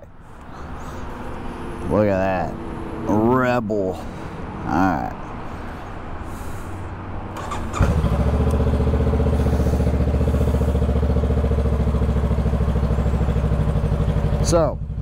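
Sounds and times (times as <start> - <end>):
motorcycle engine starting and idling: 7.3 - 15.0.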